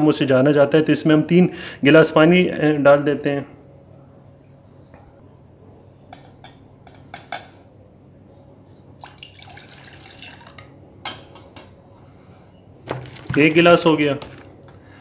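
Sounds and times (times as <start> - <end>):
water pouring into pot: 8.7 - 10.7.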